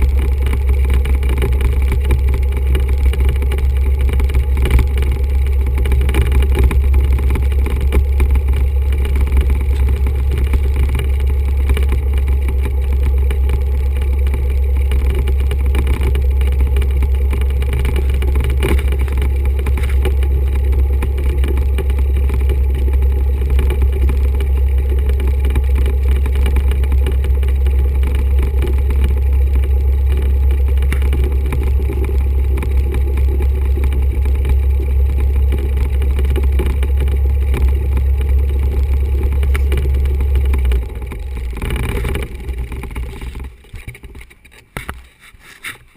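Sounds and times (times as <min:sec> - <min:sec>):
aircraft engine idling: 0:00.0 - 0:45.0.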